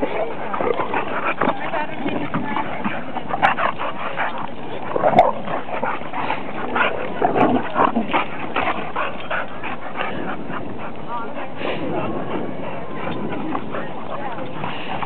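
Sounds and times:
dogs barking and yipping: 0.0 - 11.3.

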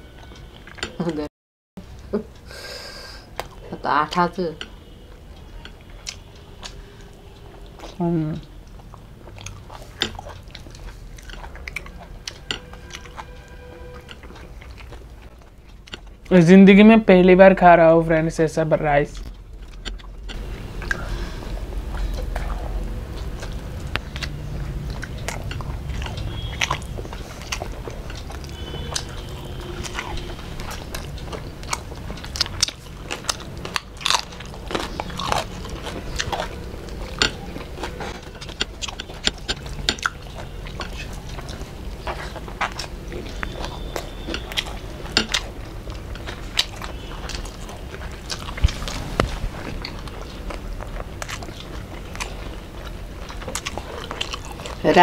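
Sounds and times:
chewing food: 0.0 - 2.5, 3.3 - 17.0, 19.0 - 55.0
food crunching: 4.6 - 17.0, 18.9 - 55.0
wet mouth clicks: 8.7 - 13.4.

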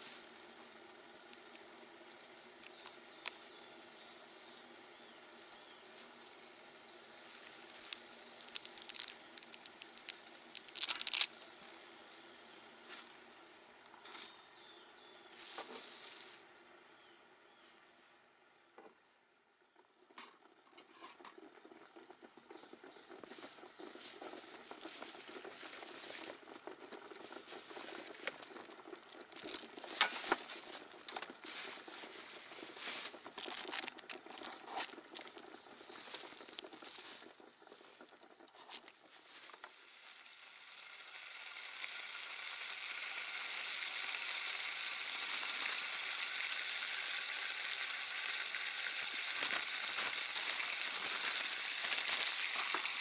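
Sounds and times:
water boiling: 0.0 - 17.6, 18.8 - 53.0
cooking gear clicks and taps: 1.2 - 1.7, 2.5 - 4.8, 7.1 - 11.6, 19.8 - 39.8, 41.4 - 53.0
plastic packaging crinkling: 7.5 - 11.3, 27.0 - 39.7, 49.4 - 53.0.

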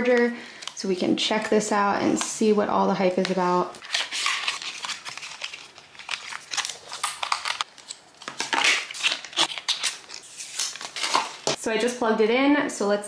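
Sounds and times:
paper packaging crinkling: 3.8 - 11.6.

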